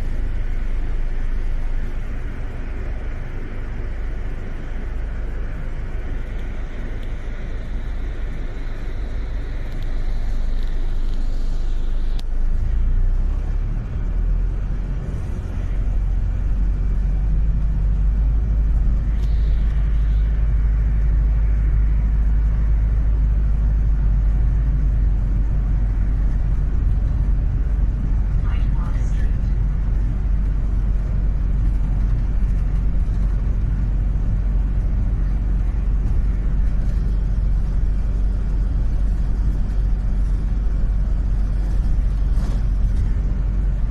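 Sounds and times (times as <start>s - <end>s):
bus engine and road rumble: 0.0s - 43.9s
faint high whine: 0.0s - 43.9s
click: 6.3s - 7.2s, 12.1s - 12.3s.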